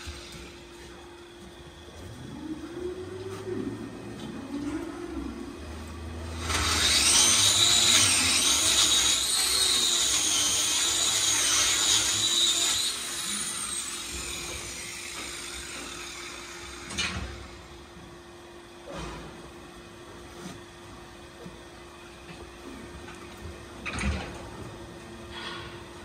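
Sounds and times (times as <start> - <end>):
angle grinder whining: 6.2 - 17.0.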